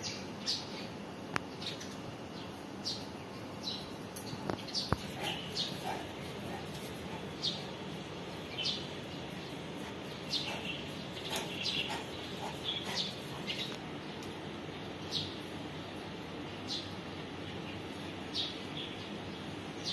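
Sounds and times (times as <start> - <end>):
small birds chirping: 0.0 - 19.9.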